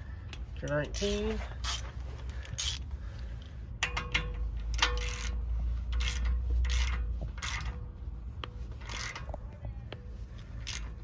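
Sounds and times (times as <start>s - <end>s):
ratchet wrench ratcheting: 0.3s - 2.9s, 3.8s - 7.9s, 8.8s - 9.4s, 10.4s - 11.0s.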